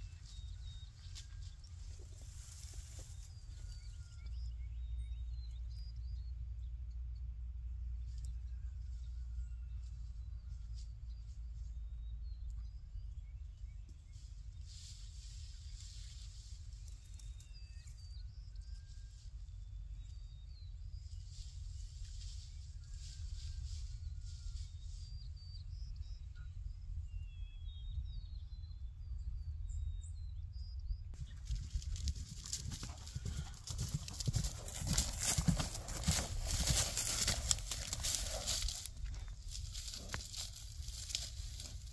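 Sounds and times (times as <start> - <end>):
small birds chirping: 24.6 - 41.9
wind buffeting microphone: 31.1 - 41.9
horse hoofbeats: 31.2 - 41.9.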